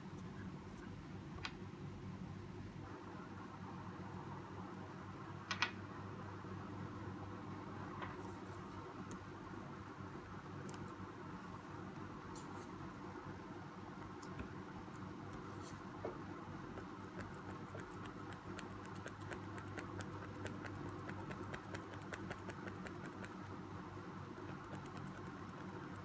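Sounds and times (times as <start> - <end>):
low steady hum: 0.0 - 26.0
pencil scratching on paper: 16.7 - 23.4.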